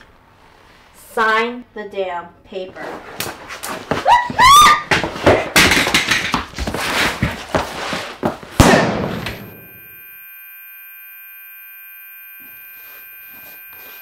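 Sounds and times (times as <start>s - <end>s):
bodies scuffling on floor: 2.7s - 5.6s, 6.2s - 8.6s
person yelling: 4.1s - 4.8s
gunshot: 8.6s - 9.6s.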